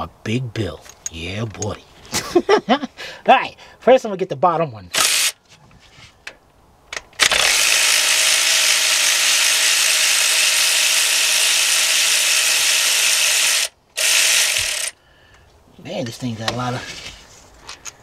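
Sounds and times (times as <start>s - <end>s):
power ratchet running: 5.0s - 5.4s, 7.2s - 15.0s.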